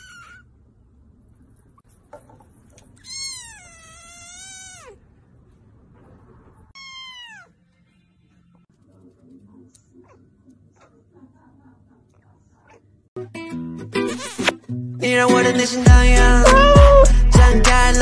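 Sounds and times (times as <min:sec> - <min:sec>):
kittens meowing: 0:00.0 - 0:00.4, 0:03.0 - 0:05.0, 0:06.8 - 0:07.5, 0:16.4 - 0:17.2.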